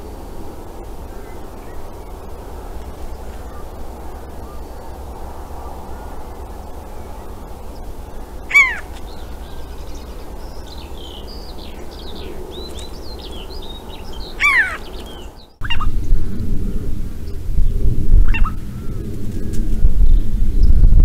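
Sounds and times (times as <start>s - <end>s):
small birds chirping: 0.0s - 20.7s
low background noise: 0.0s - 21.0s
corvid calls: 1.0s - 15.9s.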